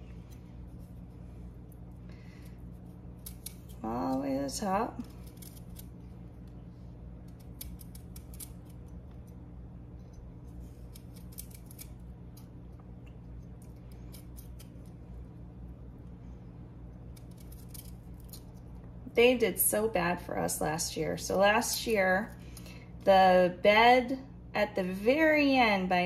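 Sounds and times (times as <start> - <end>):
steady low hum: 0.0 - 26.0
knife peeling vegetable skin: 2.4 - 5.9, 7.2 - 8.9, 10.5 - 12.0, 13.6 - 14.9, 17.1 - 18.6.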